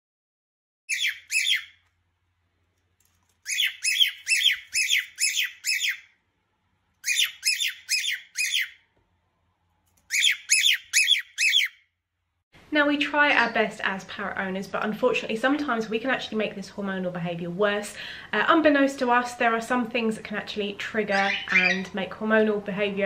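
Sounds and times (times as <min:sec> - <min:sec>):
parrot squawking: 0:00.9 - 0:01.8, 0:03.4 - 0:06.2, 0:07.0 - 0:08.8, 0:10.1 - 0:11.9, 0:21.1 - 0:22.0.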